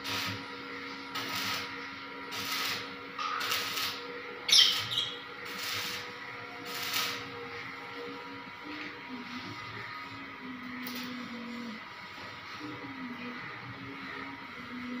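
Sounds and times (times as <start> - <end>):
electric arc crackling and hissing: 0.0 - 4.0, 4.7 - 7.4, 10.6 - 11.8
steady electrical hum: 0.0 - 15.0.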